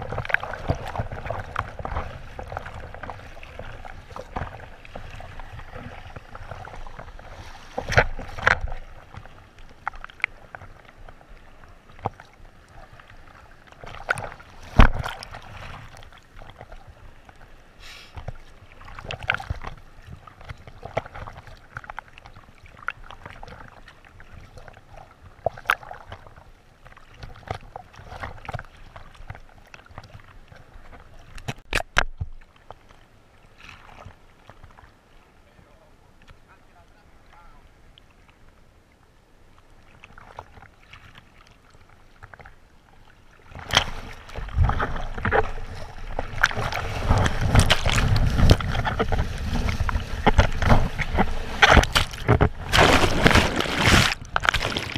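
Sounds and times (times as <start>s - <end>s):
sea water sloshing against camera: 0.0s - 54.9s
sharp water splashes: 43.4s - 54.9s.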